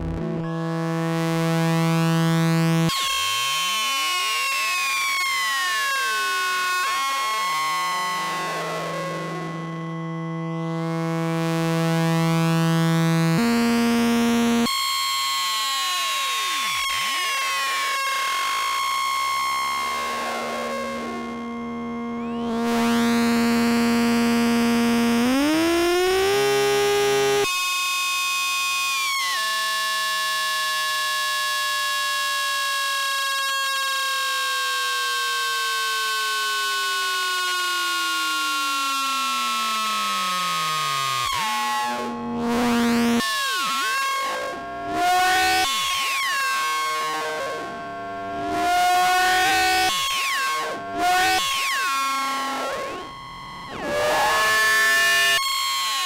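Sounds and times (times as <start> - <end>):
synthesizer tones gliding downward: 49.0 - 55.4.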